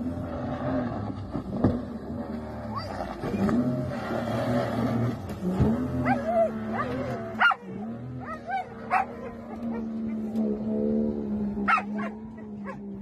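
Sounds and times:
boat engine humming: 0:00.0 - 0:13.0
dog yipping and barking: 0:06.0 - 0:09.9, 0:11.7 - 0:12.8.

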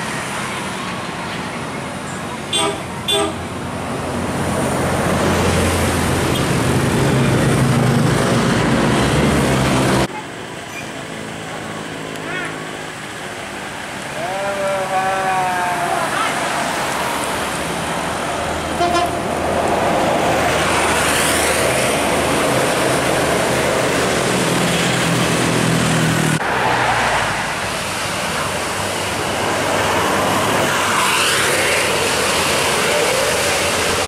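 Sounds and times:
coach engine and tyre noise: 0:00.0 - 0:34.0
traffic: 0:00.0 - 0:34.0
vehicle horn: 0:02.5 - 0:03.5, 0:18.8 - 0:19.2.

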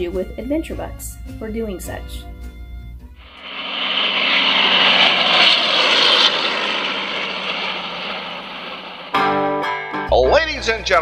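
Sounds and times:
propeller airplane engine drone: 0:03.2 - 0:09.8.

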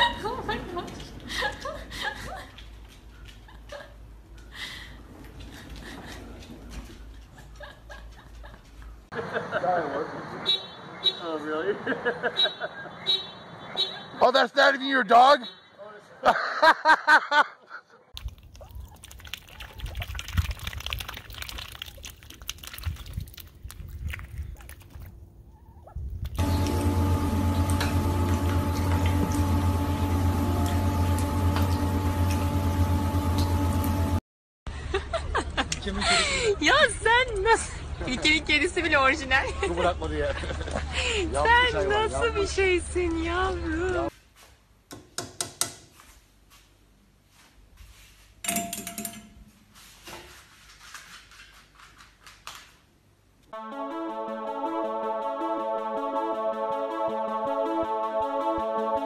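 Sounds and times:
water sloshing and splashing: 0:18.2 - 0:26.5
steady low hum: 0:26.0 - 0:34.2
metallic clatter: 0:48.4 - 0:49.6.

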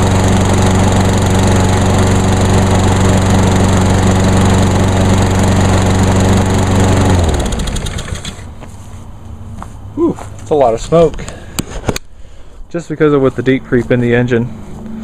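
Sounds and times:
engine spinning down: 0:00.0 - 0:08.5
lawn mower engine running: 0:00.0 - 0:08.6.

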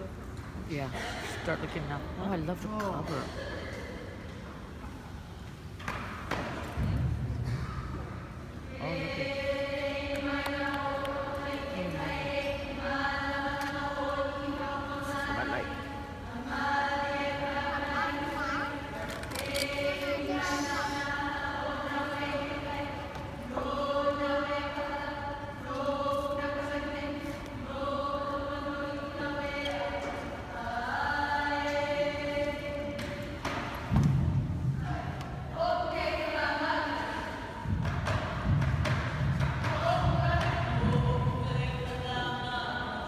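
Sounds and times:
group chanting in unison: 0:08.7 - 0:18.8.

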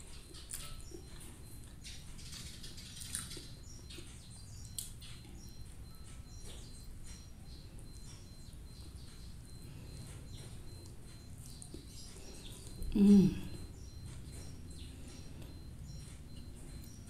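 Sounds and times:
faint bird chirps: 0:00.0 - 0:17.0
soft chewing: 0:00.0 - 0:17.0.

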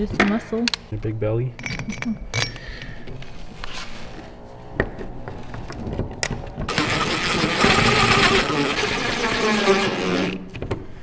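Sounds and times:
cordless drill running: 0:06.7 - 0:10.4.

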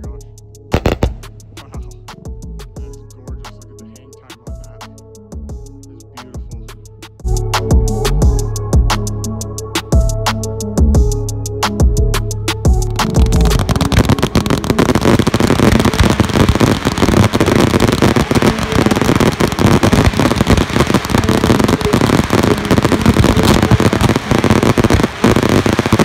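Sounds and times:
fireworks crackling and popping: 0:00.8 - 0:01.8, 0:13.0 - 0:26.0.

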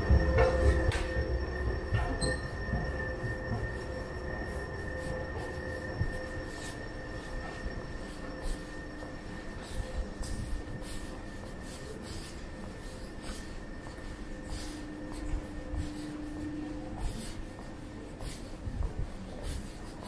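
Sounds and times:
footsteps on hard floor: 0:00.0 - 0:10.9
faint constant tones: 0:00.0 - 0:20.0
hall hum: 0:00.0 - 0:20.0.

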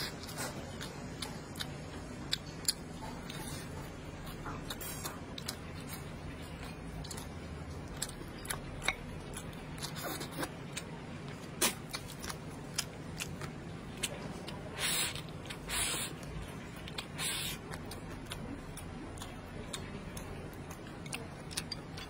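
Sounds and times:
man chewing food: 0:00.0 - 0:22.0
hissing slurps: 0:14.7 - 0:16.2, 0:17.1 - 0:17.6.

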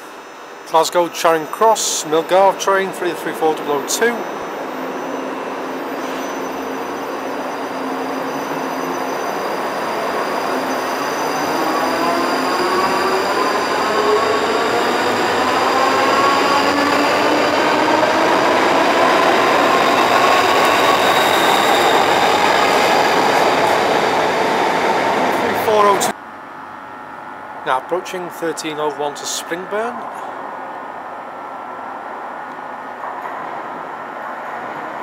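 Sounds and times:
electric train drive whining: 0:00.6 - 0:26.1.

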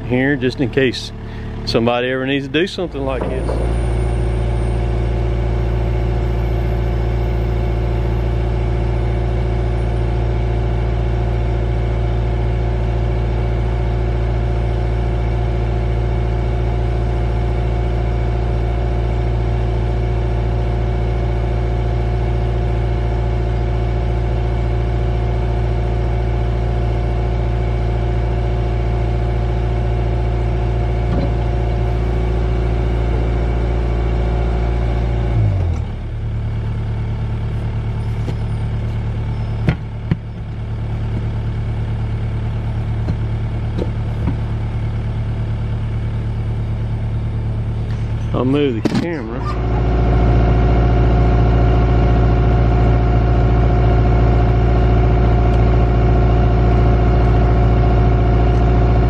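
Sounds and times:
diesel engine running: 0:00.0 - 0:59.0
sharp knocks: 0:03.2 - 0:04.3.

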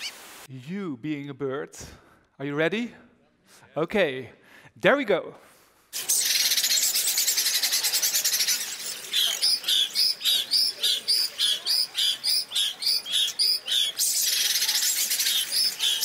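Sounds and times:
high bird-like trill: 0:06.0 - 0:16.0
high chirps: 0:06.0 - 0:16.0.

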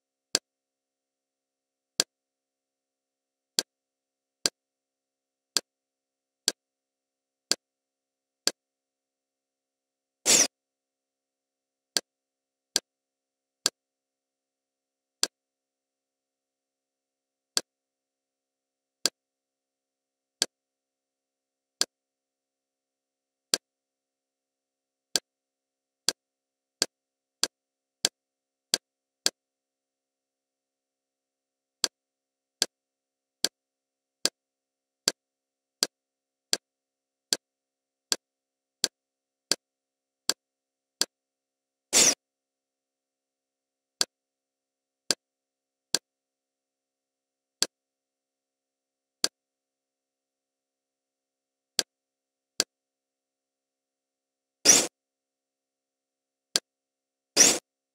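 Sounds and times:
interface clicks: 0:10.3 - 0:10.5, 0:42.0 - 0:42.2, 0:57.4 - 0:57.6.

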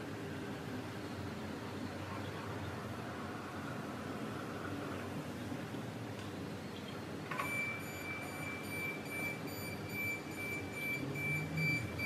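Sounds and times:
electronic alarm beeping: 0:07.4 - 0:12.0.

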